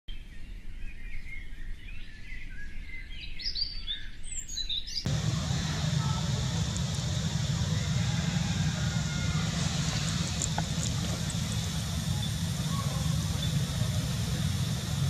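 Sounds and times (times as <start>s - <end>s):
birds chirping: 5.1s - 15.0s
low outdoor rumble: 5.1s - 15.0s.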